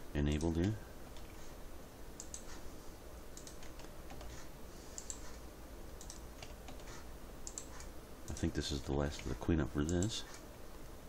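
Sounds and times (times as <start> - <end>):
faint steady low hum: 0.0 - 11.0
keyboard and mouse clicking: 2.2 - 2.6, 3.4 - 5.4, 6.0 - 8.5.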